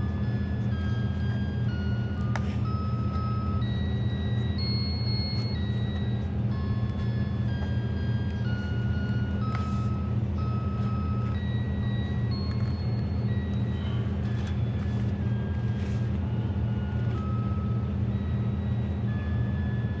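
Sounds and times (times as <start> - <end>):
low hum: 0.0 - 20.0
book handling clicks: 2.2 - 2.6, 12.5 - 16.3.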